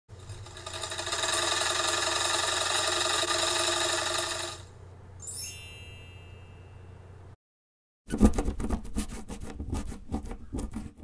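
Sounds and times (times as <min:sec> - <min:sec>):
sewing machine stitching: 0:00.1 - 0:04.7
bright chime with high sweep: 0:05.2 - 0:07.0.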